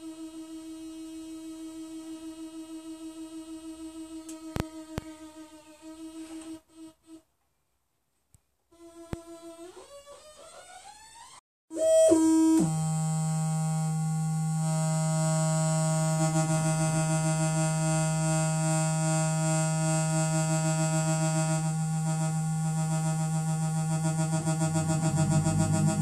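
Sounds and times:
buzzy synthesizer drone: 0:11.8 - 0:26.0
higher synthesizer tone: 0:22.3 - 0:26.0.

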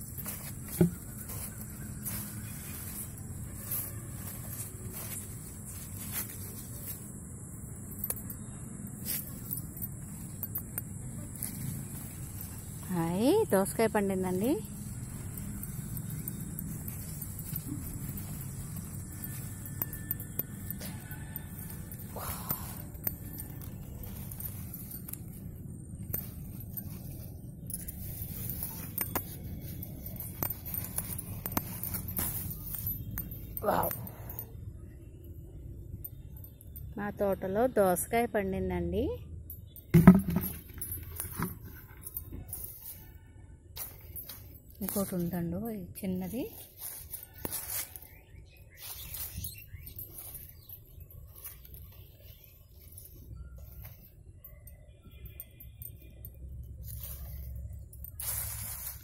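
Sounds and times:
leaves and grass rustling: 0:00.0 - 0:33.9, 0:43.8 - 0:54.4, 0:55.4 - 0:59.0
phone handling noise: 0:40.0 - 0:41.6.

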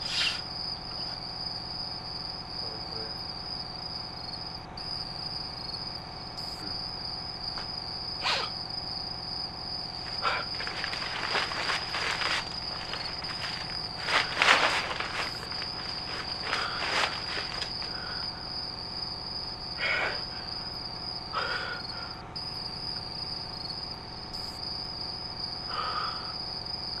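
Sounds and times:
crickets chirring: 0:00.0 - 0:27.0
short noises: 0:08.2 - 0:08.6, 0:10.0 - 0:18.3.

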